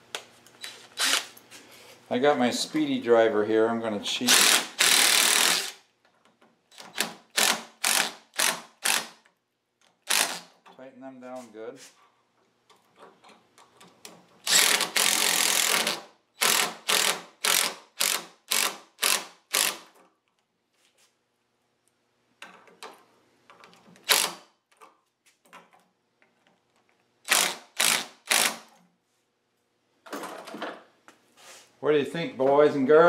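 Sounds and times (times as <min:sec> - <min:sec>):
cordless drill driving bolts: 0:00.6 - 0:01.4, 0:04.3 - 0:05.8, 0:06.7 - 0:09.3, 0:10.0 - 0:10.5, 0:14.4 - 0:19.9, 0:24.0 - 0:24.4, 0:27.2 - 0:28.7.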